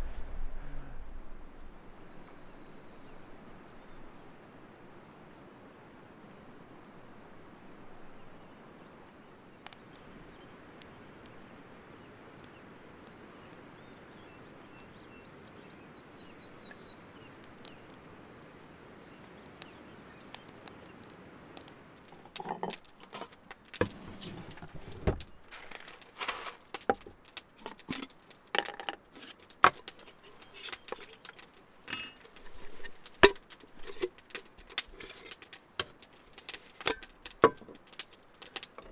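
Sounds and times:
faint bird chirps: 0:12.0 - 0:21.1.

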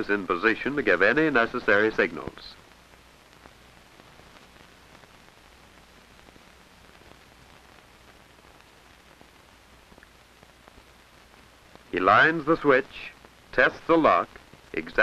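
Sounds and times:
film soundtrack hiss: 0:00.0 - 0:15.0
faint clicks: 0:02.5 - 0:11.9, 0:14.3 - 0:14.8.

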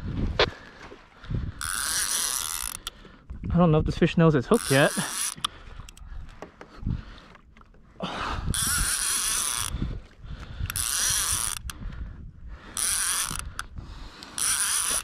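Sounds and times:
fishing reel whirring and ratcheting: 0:01.4 - 0:03.1, 0:04.5 - 0:06.1, 0:08.4 - 0:12.0, 0:12.6 - 0:15.0.

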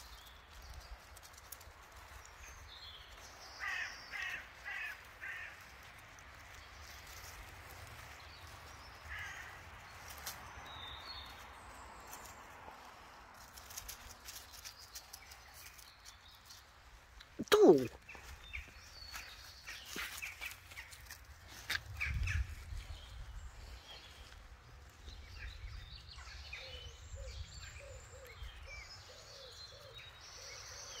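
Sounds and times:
light rustling and ticking: 0:00.0 - 0:03.4, 0:04.2 - 0:10.6, 0:12.0 - 0:17.4, 0:19.1 - 0:22.6
small birds chirping: 0:00.0 - 0:31.0.

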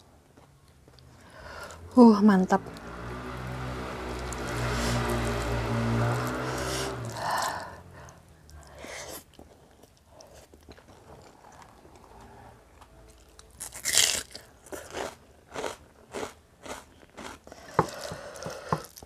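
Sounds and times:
crunchy chewing: 0:08.4 - 0:19.0.

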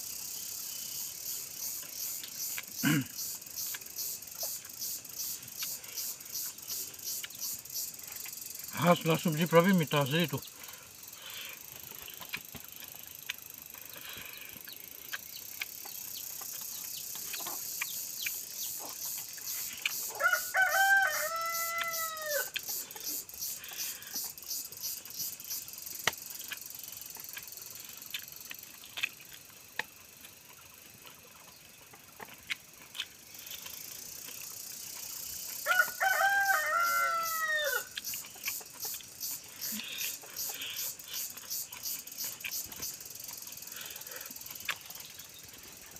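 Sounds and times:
rooster crowing: 0:20.1 - 0:22.6, 0:35.6 - 0:38.0.

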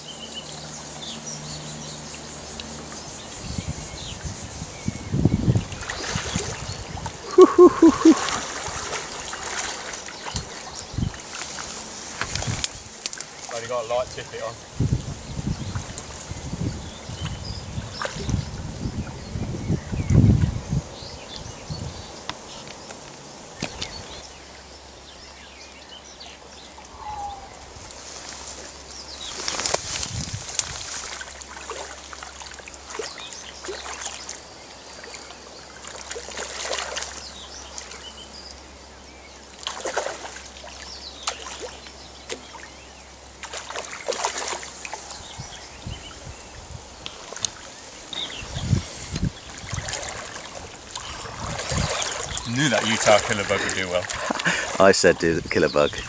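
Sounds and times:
stream trickling: 0:00.0 - 0:27.0, 0:27.6 - 0:56.0
fish splashing in river water: 0:05.7 - 0:13.6, 0:29.2 - 0:38.1, 0:39.6 - 0:42.7, 0:43.3 - 0:45.1, 0:49.3 - 0:54.9.

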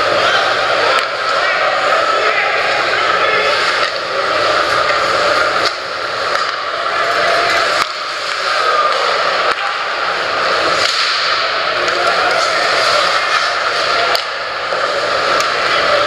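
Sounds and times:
rink and crowd hiss: 0:00.0 - 0:16.0.

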